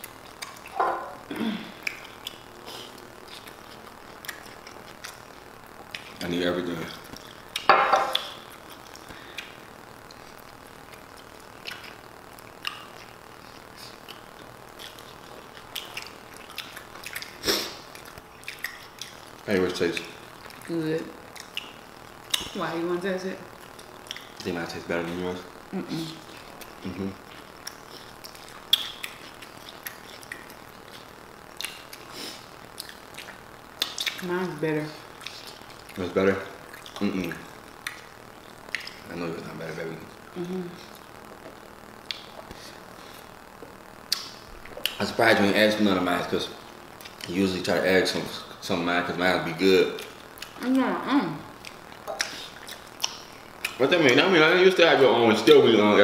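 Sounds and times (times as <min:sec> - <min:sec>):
chewing and smacking: 0:00.0 - 0:00.8, 0:01.8 - 0:06.3, 0:06.9 - 0:22.6, 0:23.6 - 0:24.5, 0:26.2 - 0:32.1, 0:32.7 - 0:34.2, 0:35.1 - 0:36.0, 0:36.6 - 0:39.1, 0:40.9 - 0:42.7, 0:43.6 - 0:45.1, 0:47.0 - 0:47.4, 0:50.0 - 0:50.6, 0:51.6 - 0:53.9.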